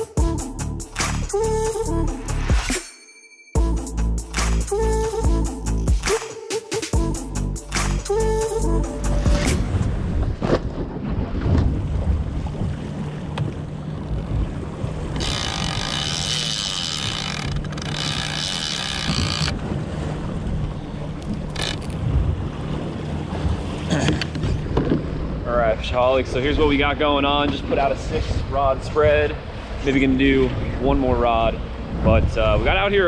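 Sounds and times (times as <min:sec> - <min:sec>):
outboard engines rumbling: 0:07.0 - 0:33.0
wind on microphone: 0:09.3 - 0:25.4, 0:27.8 - 0:33.0
water washing against hull: 0:09.3 - 0:33.0.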